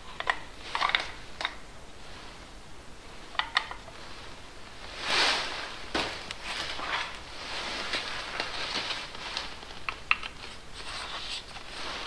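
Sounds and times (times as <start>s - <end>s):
scraping rustle: 3.6s - 12.0s.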